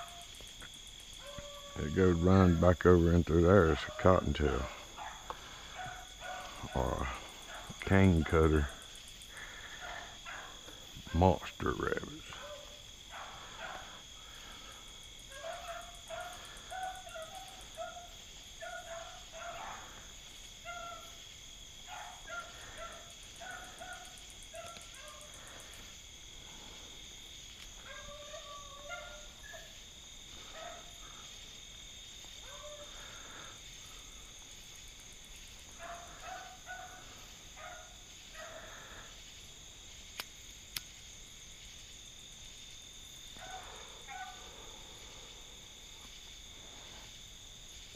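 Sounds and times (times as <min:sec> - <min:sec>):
distant dogs baying: 0:00.0 - 0:39.9, 0:42.8 - 0:47.9
crickets chirping: 0:00.0 - 0:47.9
faint clicks: 0:40.1 - 0:40.9.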